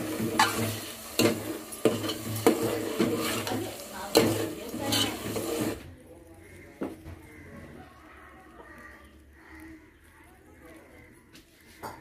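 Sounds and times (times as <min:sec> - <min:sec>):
onion sizzling in hot oil: 0:00.0 - 0:07.4
spoon knocking against pan: 0:00.2 - 0:05.5.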